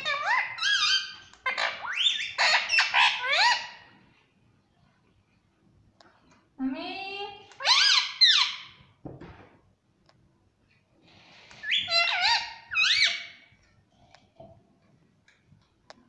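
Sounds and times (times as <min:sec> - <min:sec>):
parakeet calling: 0:00.0 - 0:03.9, 0:07.5 - 0:08.8, 0:11.2 - 0:13.5.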